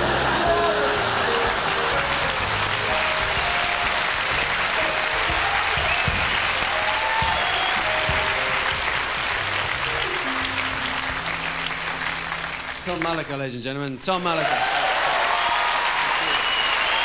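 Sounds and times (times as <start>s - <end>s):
music notes: 0.0s - 13.2s
studio audience applauding: 0.0s - 17.0s.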